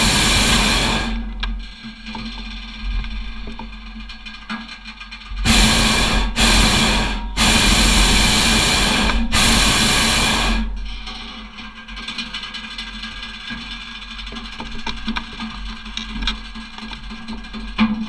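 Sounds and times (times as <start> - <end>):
propane burner blasts: 0.0 - 1.7, 5.3 - 11.1.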